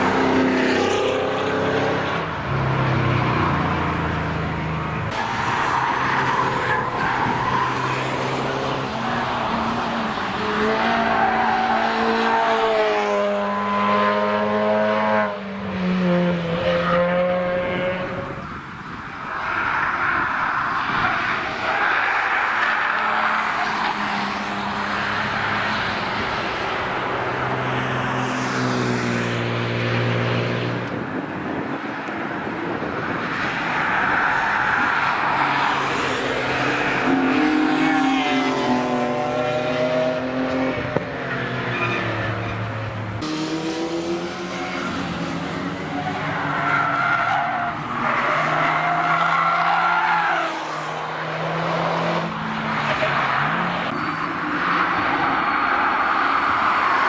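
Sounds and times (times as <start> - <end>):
race car engine passing: 34.9 - 55.2.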